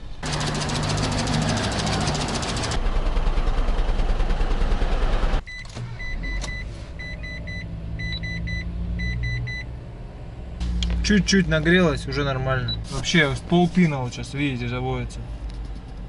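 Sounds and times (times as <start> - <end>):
engine exhaust idling: 0.0 - 5.5, 10.6 - 13.7
engine hum inside cabin: 0.0 - 16.0.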